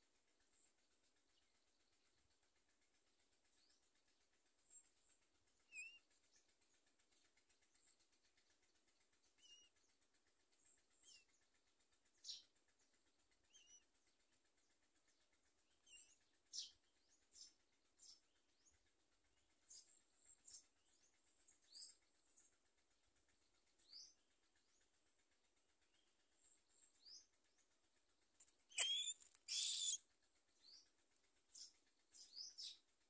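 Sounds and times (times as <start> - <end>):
nestlings squeaking and chirping: 28.4 - 30.0.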